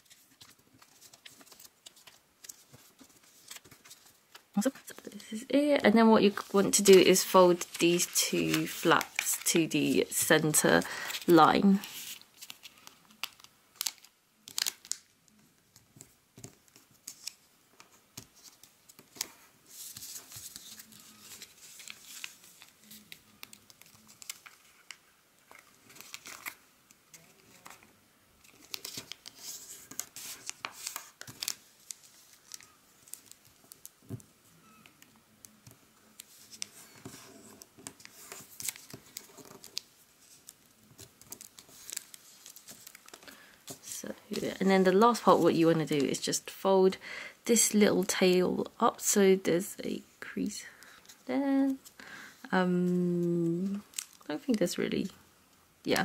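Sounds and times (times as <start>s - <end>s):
paper crinkling while folded: 0.0s - 5.5s, 6.1s - 46.4s, 50.2s - 55.2s.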